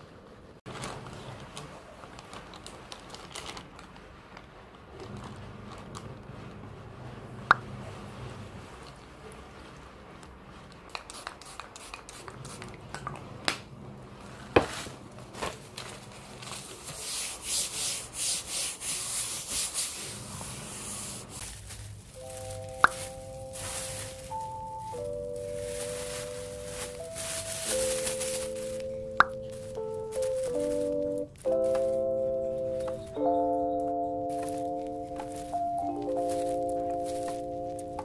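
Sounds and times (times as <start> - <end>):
rhythmic rubbing strokes: 16.7 - 33.3.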